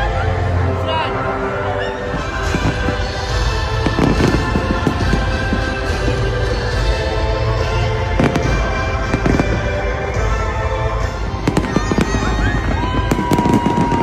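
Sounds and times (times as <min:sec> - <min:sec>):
fireworks bangs and crackles: 0:02.0 - 0:14.0
firework whistles: 0:11.4 - 0:14.0.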